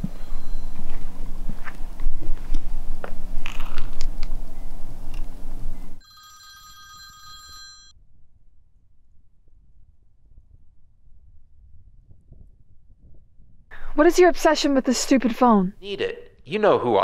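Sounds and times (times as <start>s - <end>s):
footsteps: 0.0s - 4.1s
telephone bell ringing: 6.0s - 7.9s.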